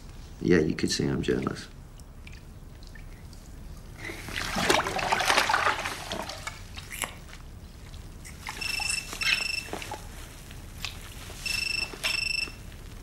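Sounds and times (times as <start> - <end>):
phone ringtone: 8.6 - 9.7, 11.4 - 12.6.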